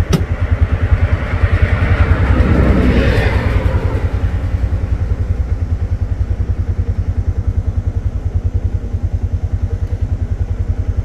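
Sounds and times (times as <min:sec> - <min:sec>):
rickshaw engine puttering: 0:00.0 - 0:11.0.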